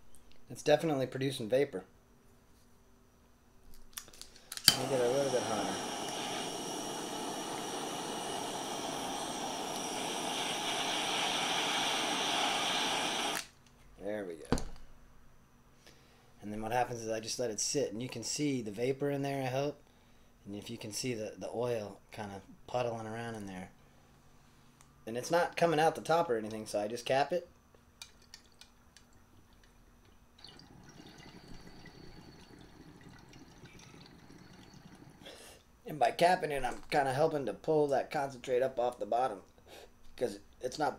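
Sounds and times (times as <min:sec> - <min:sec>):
torch flame hissing: 0:04.7 - 0:13.5
water bubbling in glass pipe: 0:30.4 - 0:35.3.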